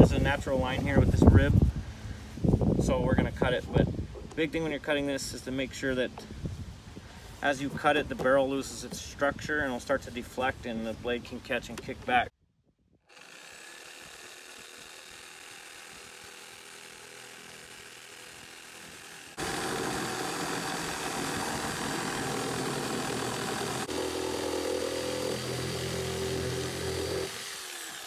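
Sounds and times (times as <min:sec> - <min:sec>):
reciprocating saw cutting plastic: 0:13.1 - 0:28.0.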